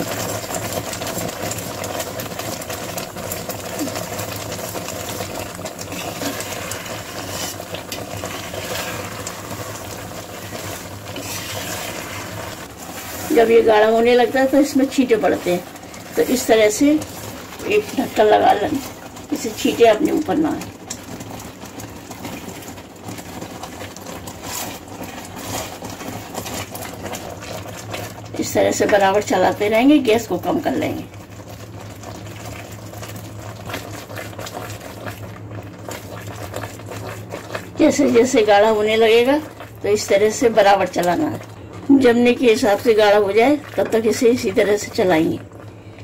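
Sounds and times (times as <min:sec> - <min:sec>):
thick milk bubbling: 0:00.0 - 0:46.0
spatula scraping pan: 0:05.8 - 0:20.0, 0:24.3 - 0:26.7
spoon scraping metal pan: 0:11.1 - 0:12.3.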